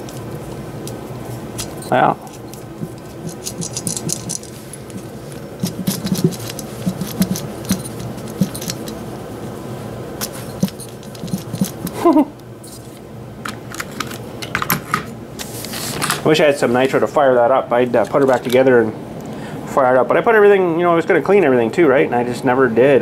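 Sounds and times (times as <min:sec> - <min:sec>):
toy car parts clicking and rattling: 0:01.6 - 0:05.0, 0:05.6 - 0:09.0, 0:10.2 - 0:12.0.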